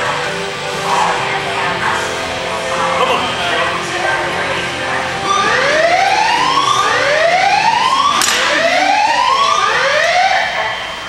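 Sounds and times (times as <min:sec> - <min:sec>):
rising siren-like whoops: 0:05.3 - 0:11.0.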